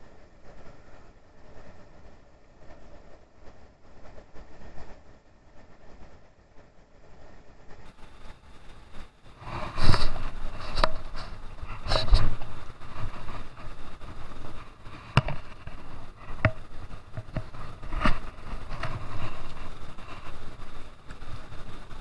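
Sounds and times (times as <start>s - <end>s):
fast stream running: 7.9s - 22.0s
reel and net clicks and knocks: 9.0s - 22.0s.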